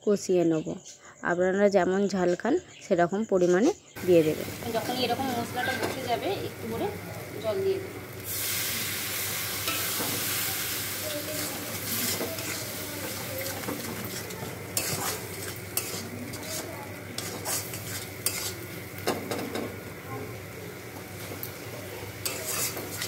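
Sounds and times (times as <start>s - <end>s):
spice paste sizzling in oil: 4.0s - 23.0s
metal spatula clicking against pan: 22.2s - 23.0s.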